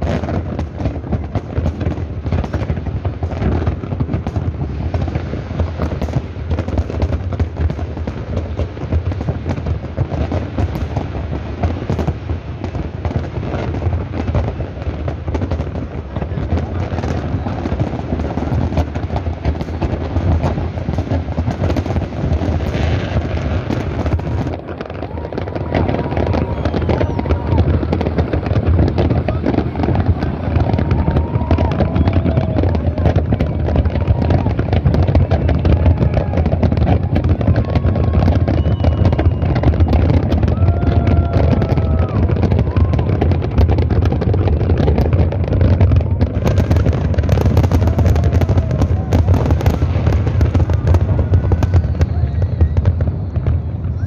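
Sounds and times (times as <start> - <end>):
fireworks bursting and crackling: 0.0 - 54.0.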